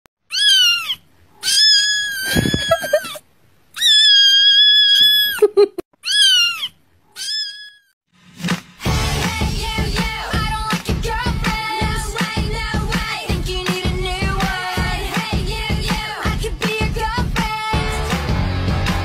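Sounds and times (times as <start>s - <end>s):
kitten meowing: 0.3s - 3.2s, 3.8s - 5.4s, 6.0s - 7.9s.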